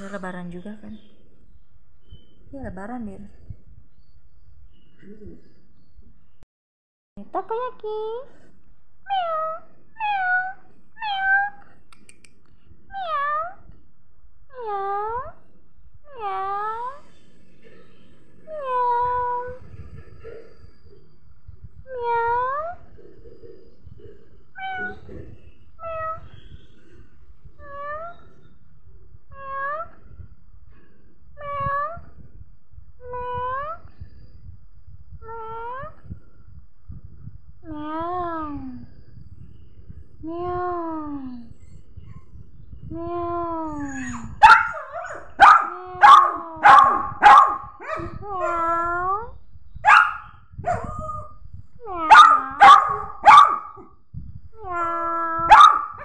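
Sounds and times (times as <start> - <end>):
pet whining: 24.5 - 26.6, 43.4 - 54.0, 54.6 - 56.0
dog yipping: 43.7 - 49.1, 49.8 - 51.3, 52.0 - 53.8, 54.7 - 56.0
dog barking: 43.8 - 48.6, 49.8 - 51.2, 52.1 - 53.9, 54.8 - 56.0.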